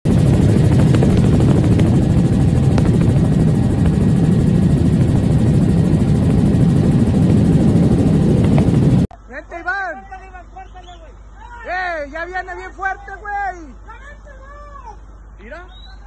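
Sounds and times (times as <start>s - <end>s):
helicopter engine and rotor: 0.1s - 9.1s.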